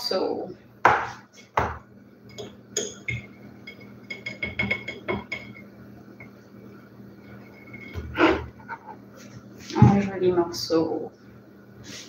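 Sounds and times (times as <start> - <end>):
metal utensil clinking on plate: 2.3 - 5.7.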